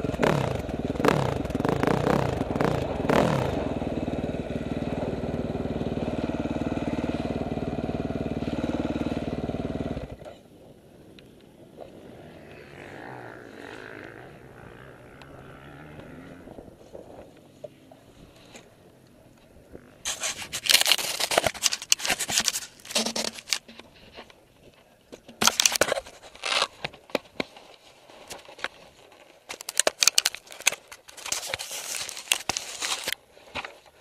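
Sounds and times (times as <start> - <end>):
camera handling noise: 20.1 - 23.8, 25.4 - 27.5, 29.5 - 33.2.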